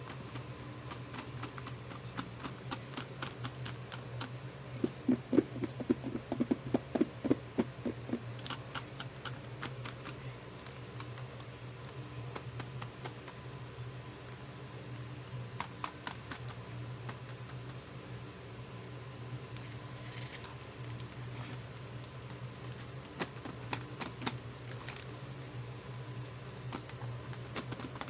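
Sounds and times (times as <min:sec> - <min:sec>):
steady low hum: 0:00.0 - 0:28.0
fingers tapping plastic wrapping: 0:26.7 - 0:28.0.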